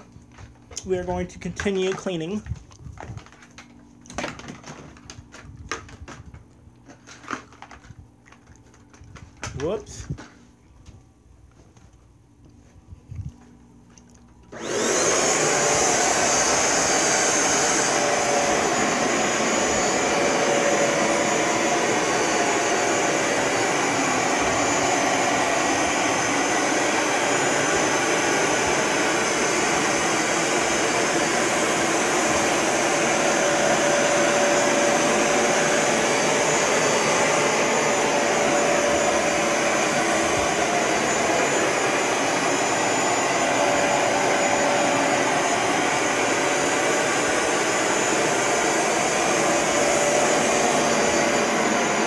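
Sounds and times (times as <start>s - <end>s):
carpet cleaner motor running: 14.5s - 52.0s.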